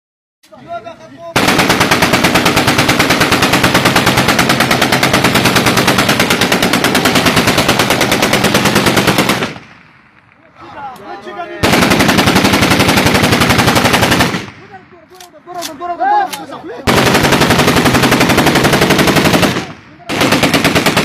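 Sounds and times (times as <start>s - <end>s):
automatic rifle fire: 1.4s - 10.3s, 11.6s - 14.8s, 16.8s - 21.0s.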